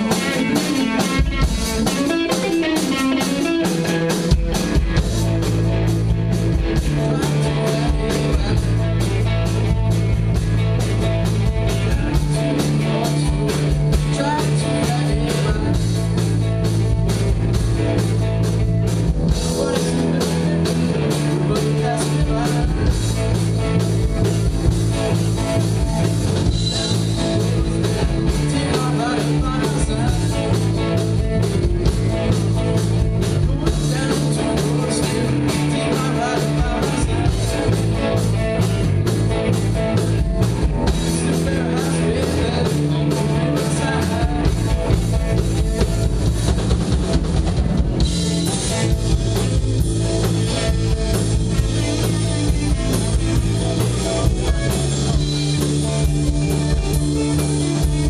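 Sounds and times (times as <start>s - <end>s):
live rock band playing: 0.0s - 58.0s.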